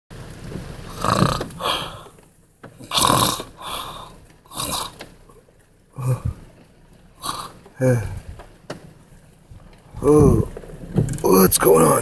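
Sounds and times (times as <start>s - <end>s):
man snoring: 0.9s - 2.1s, 2.8s - 5.0s, 7.2s - 8.2s.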